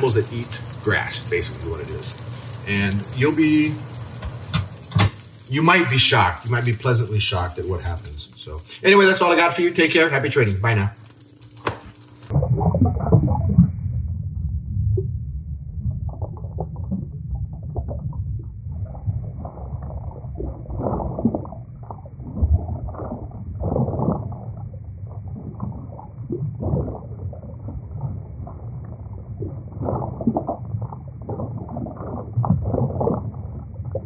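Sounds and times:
muffled low rumbling: 12.3 - 34.0.

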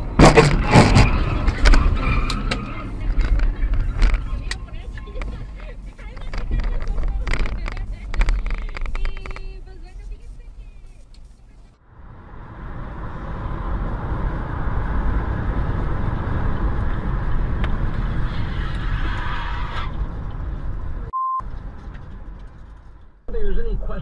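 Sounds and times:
car road noise: 0.0 - 24.0
short high beep: 21.1 - 21.4.

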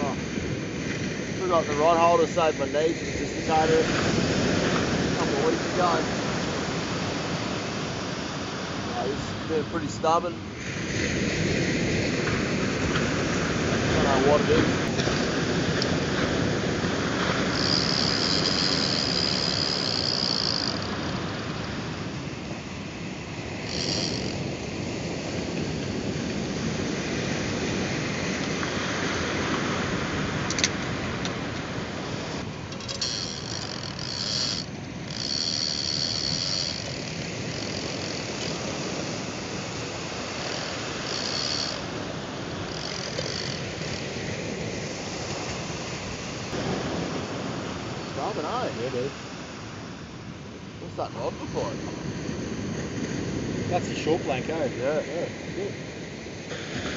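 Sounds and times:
surf washing: 0.0 - 56.9
fishing reel ratchet whining: 17.4 - 22.2, 23.5 - 24.6, 32.7 - 44.7.

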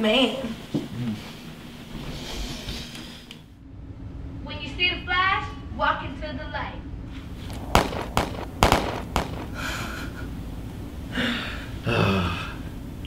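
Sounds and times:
gunshots: 7.5 - 9.8.

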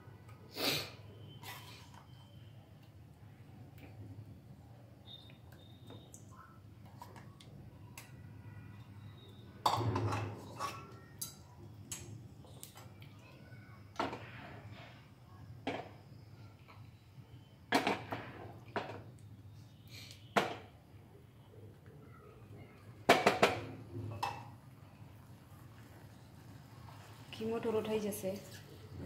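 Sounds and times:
spatula scraping frying pan: 1.2 - 2.0.

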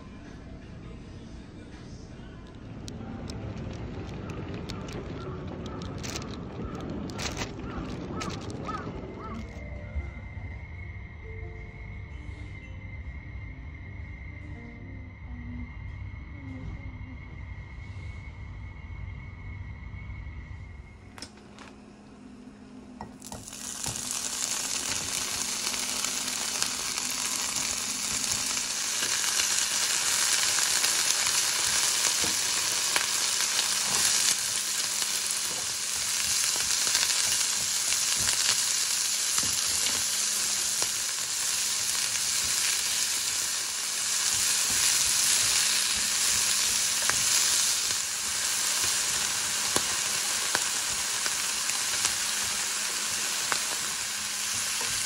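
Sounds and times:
food sizzling in a frying pan: 23.0 - 55.0.

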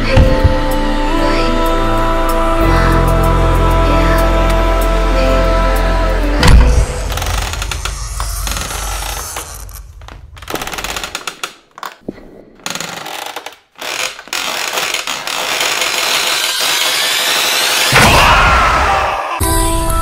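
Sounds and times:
harsh rattling noise: 12.6 - 18.0.

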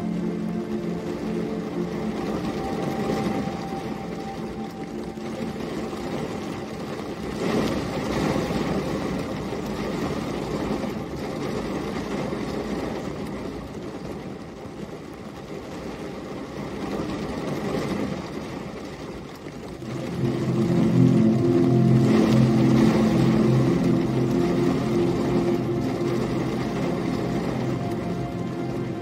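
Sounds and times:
steady rain: 0.0 - 29.0
vehicle engine hum: 19.4 - 29.0.

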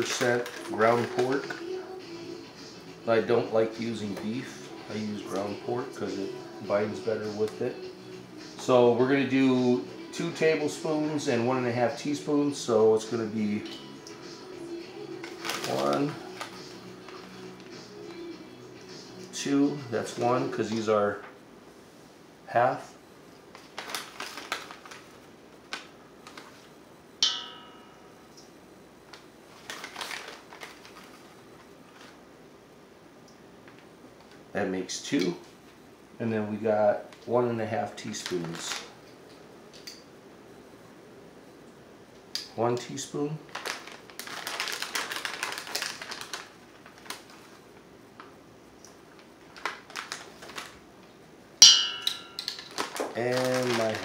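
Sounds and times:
paper packet crinkling and scraping: 0.0 - 1.7, 15.2 - 17.4, 23.5 - 26.7, 29.5 - 32.2, 38.0 - 39.0, 43.4 - 47.8, 49.1 - 50.8, 52.4 - 54.0
plastic bag rustling: 0.0 - 1.9, 15.2 - 17.7, 23.4 - 26.8, 29.1 - 32.2, 38.0 - 39.0, 43.4 - 48.4, 49.0 - 51.1, 52.4 - 54.0
spoon tapping metal bowl: 27.2 - 28.4, 51.6 - 52.6
spoon clanking on metal bowl: 51.6 - 52.6.

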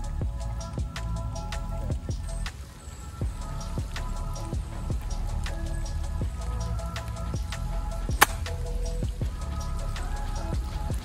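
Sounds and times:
percussive beat: 8.1 - 8.6.

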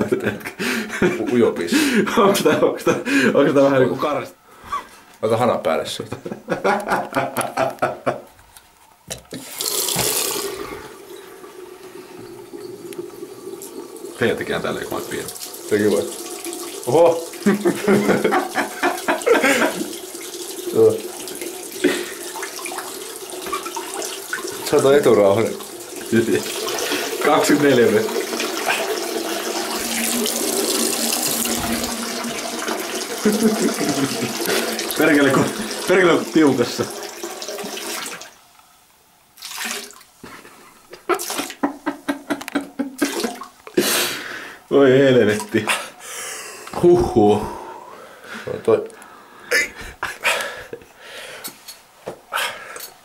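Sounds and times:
water running from a tap: 9.3 - 38.4, 39.4 - 40.0
person's voice: 35.0 - 37.0, 46.7 - 47.7.

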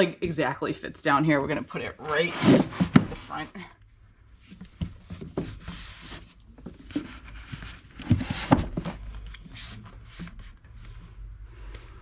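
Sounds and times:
books sliding on a shelf: 2.0 - 3.5, 4.8 - 11.0.

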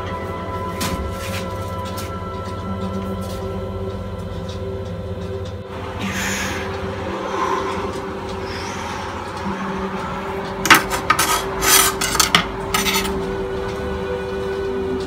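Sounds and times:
steady low hum: 0.0 - 15.0
knife scraping on countertop: 10.7 - 13.2.

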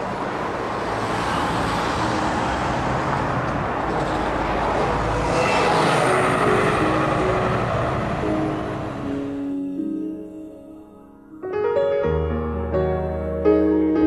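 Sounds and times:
wind: 0.0 - 10.3.

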